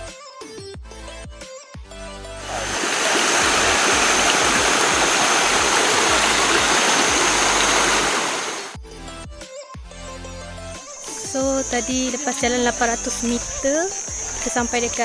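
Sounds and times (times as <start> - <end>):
stream rushing over rock: 2.4 - 8.8.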